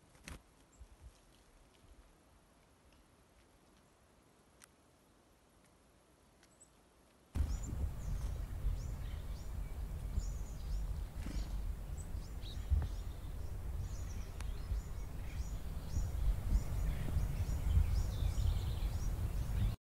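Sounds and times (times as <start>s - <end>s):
chickadees calling: 7.4s - 19.8s
wind rumble on microphone: 7.4s - 19.8s.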